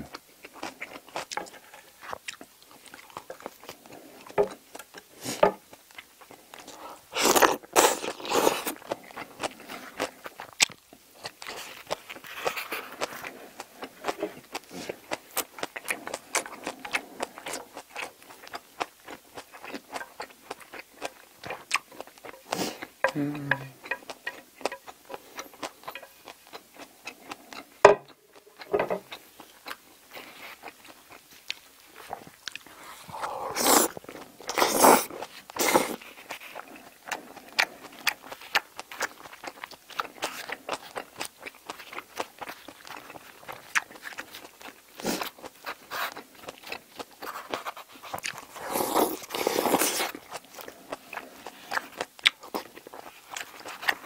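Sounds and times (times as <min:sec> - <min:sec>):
chewing and mouth clicks: 0:00.1 - 0:05.1, 0:05.7 - 0:54.0
plate knocking on wooden table: 0:27.9 - 0:28.1
loud slurps: 0:32.8 - 0:36.0, 0:48.6 - 0:50.1.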